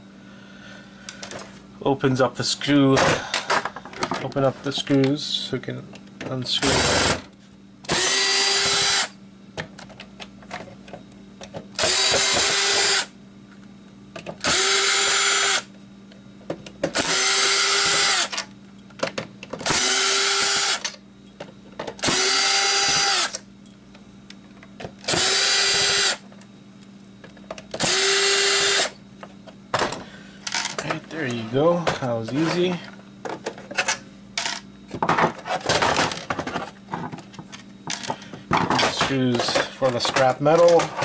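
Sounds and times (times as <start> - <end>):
cordless drill whining: 6.6 - 7.2, 7.9 - 9.1, 11.8 - 13.1, 14.4 - 15.7, 17.0 - 18.4, 19.6 - 20.9, 22.0 - 23.4, 25.1 - 26.2, 27.8 - 29.0.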